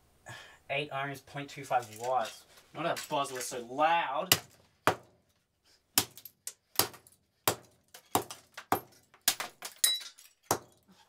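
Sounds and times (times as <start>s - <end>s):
plastic and metal pieces clinking: 1.8s - 3.6s, 7.9s - 10.9s.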